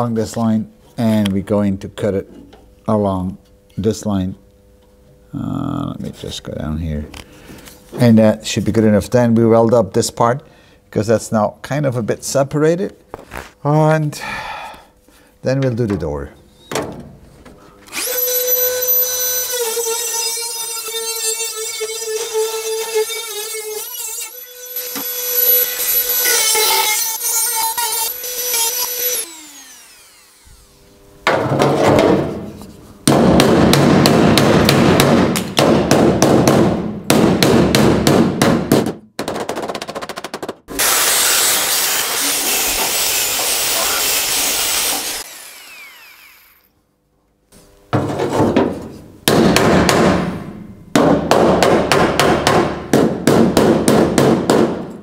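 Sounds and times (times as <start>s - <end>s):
rotary tool whining: 17.9s - 31.0s, 41.1s - 46.8s.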